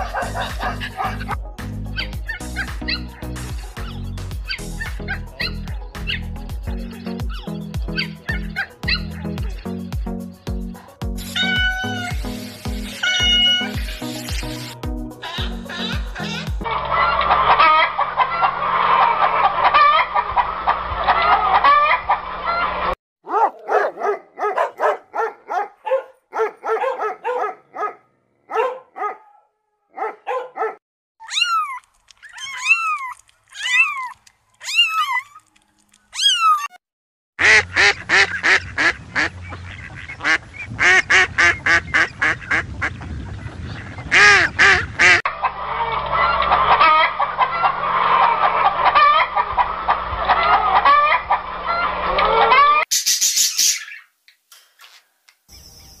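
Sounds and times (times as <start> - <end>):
noisy fowl flock: 16.6 - 23.0, 37.4 - 43.0, 44.1 - 54.0
short quacking calls: 37.4 - 42.6
high falling bird calls: 52.8 - 54.2, 54.8 - 56.0.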